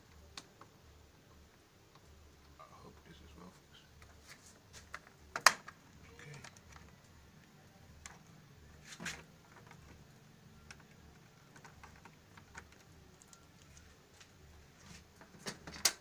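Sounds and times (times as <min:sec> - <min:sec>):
plastic snaps: 0:04.9 - 0:05.8, 0:15.2 - 0:16.0.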